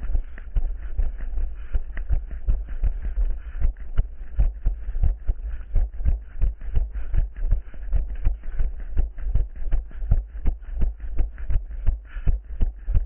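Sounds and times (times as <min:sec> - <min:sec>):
running footsteps: 0:00.0 - 0:13.0
steady low rumble: 0:00.0 - 0:13.0.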